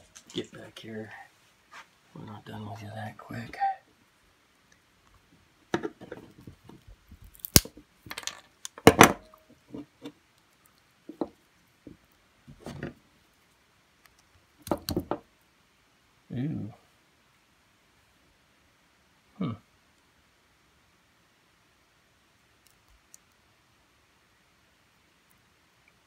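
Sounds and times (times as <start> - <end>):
plastic switch cracking under pliers: 7.3 - 7.7.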